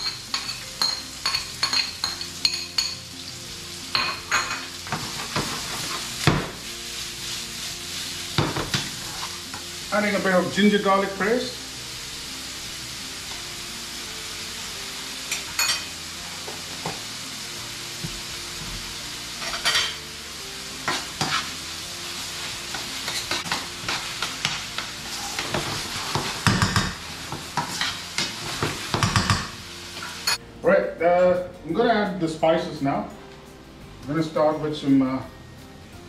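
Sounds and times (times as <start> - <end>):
onions sizzling in oil: 0.0 - 30.4.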